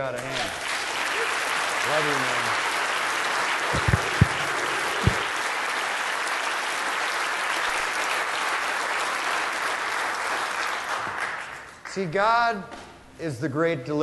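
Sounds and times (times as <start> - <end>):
audience applauding: 0.0 - 11.7
short dull thumps: 3.8 - 5.2.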